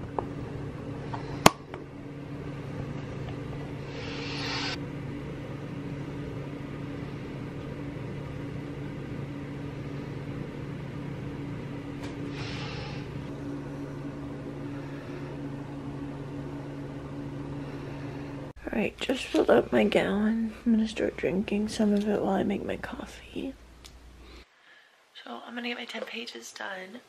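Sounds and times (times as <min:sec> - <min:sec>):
low mechanical hum: 0:00.0 - 0:27.0
short hissy swishes: 0:03.9 - 0:04.8.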